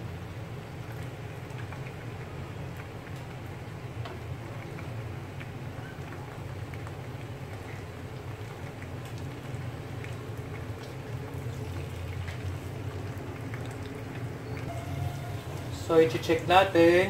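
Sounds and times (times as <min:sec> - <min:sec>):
steady low hum: 0:00.0 - 0:16.2.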